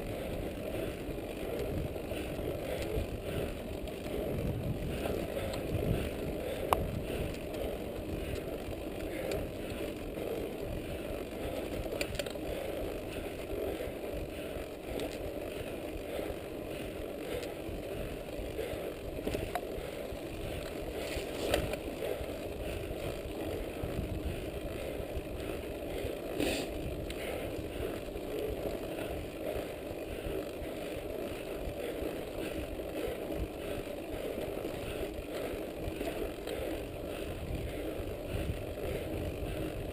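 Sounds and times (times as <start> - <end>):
bike rattling: 0.0 - 39.9
sharp clicks: 11.7 - 12.6.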